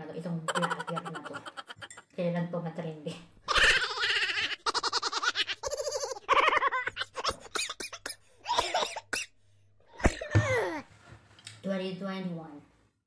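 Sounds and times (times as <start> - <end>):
woman laughing: 0.5 - 2.1, 3.5 - 7.6.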